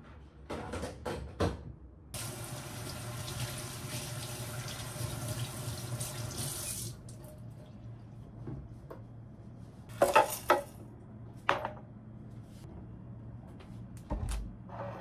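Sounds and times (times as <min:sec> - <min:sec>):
kitchen tap running into sink: 0:02.2 - 0:07.2.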